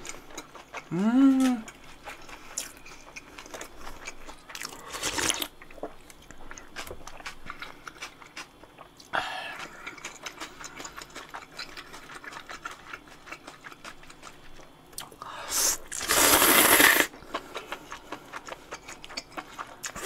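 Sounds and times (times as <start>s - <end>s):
chewing with wet mouth clicks: 0.0s - 15.2s, 17.1s - 20.0s
slurping noodles: 15.5s - 17.1s.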